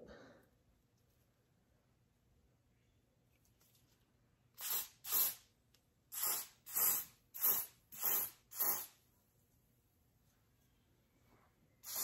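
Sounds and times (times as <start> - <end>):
aerosol spray hissing: 4.6 - 5.4, 6.1 - 9.0.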